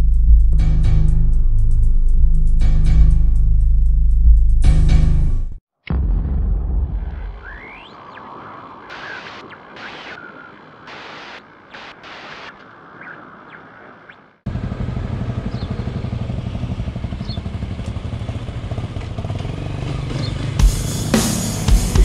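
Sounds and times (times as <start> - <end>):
motorcycle engine running low revs: 14.5 - 22.0.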